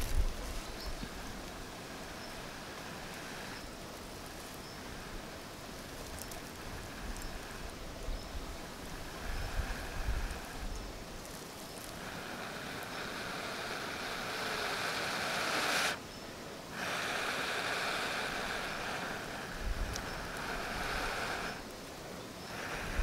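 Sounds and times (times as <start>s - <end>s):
breaths blown into tinder: 12.4s - 16.0s.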